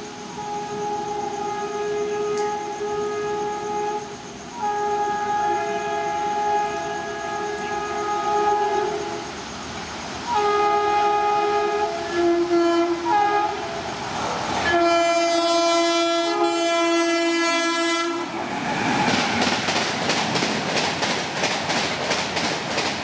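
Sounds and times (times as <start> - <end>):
train air horn blasts: 0.0 - 9.4, 10.3 - 13.9, 14.6 - 18.4
train rushing on rails: 0.0 - 23.0.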